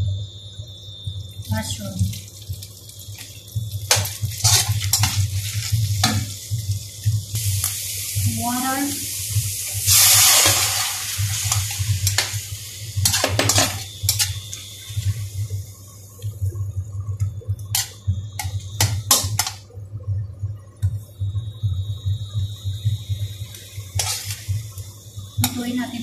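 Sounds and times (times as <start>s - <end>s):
low steady hum: 0.0s - 26.0s
liquid hissing in hot wok: 2.1s - 16.2s, 22.2s - 26.0s
metal ladle scraping wok: 24.0s - 24.4s.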